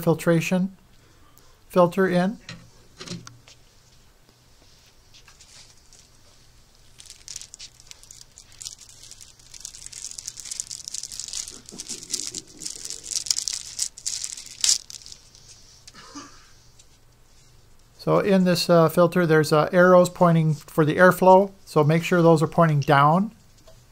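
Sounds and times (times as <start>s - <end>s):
plastic bag crinkling: 5.3s - 15.6s.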